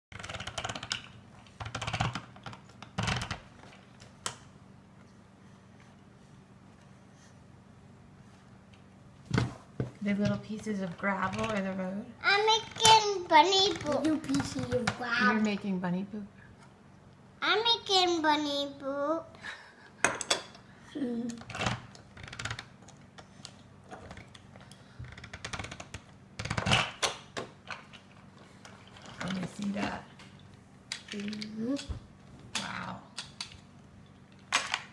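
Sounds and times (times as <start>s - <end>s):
plastic toy crank clicking: 0.2s - 2.3s, 12.5s - 14.7s, 21.5s - 22.7s, 25.1s - 27.0s
plastic pieces clicking and knocking: 0.2s - 3.4s, 21.3s - 23.0s, 25.1s - 29.6s, 30.9s - 31.9s, 34.3s - 34.9s.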